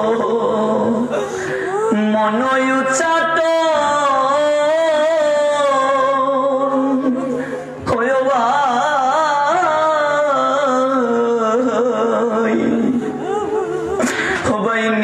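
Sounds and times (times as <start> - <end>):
man singing devotional melody: 0.0 - 15.0.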